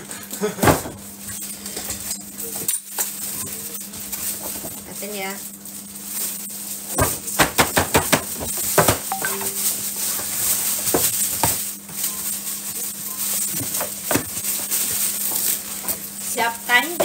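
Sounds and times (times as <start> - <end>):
paper bag rustling: 8.3 - 17.0.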